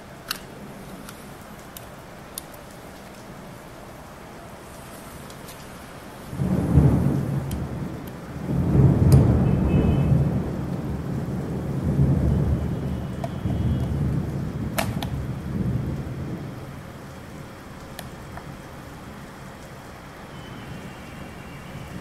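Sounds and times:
sharp plastic clicks: 0.2 - 0.5, 14.8 - 15.2.

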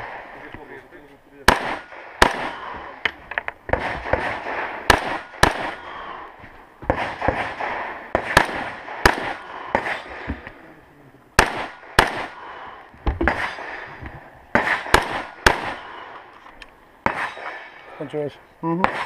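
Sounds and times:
rifle shots with echo: 0.0 - 0.8, 1.4 - 10.6, 11.3 - 16.3, 17.0 - 19.0.

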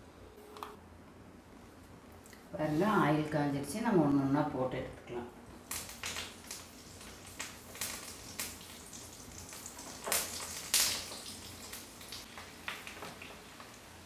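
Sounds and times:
deep-frying sizzle and bubbling: 5.5 - 14.0
oil crackling and popping: 5.5 - 14.0.

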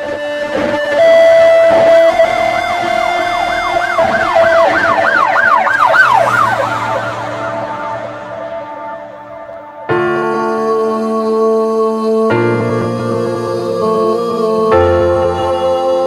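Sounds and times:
siren-like wail: 0.9 - 10.2.

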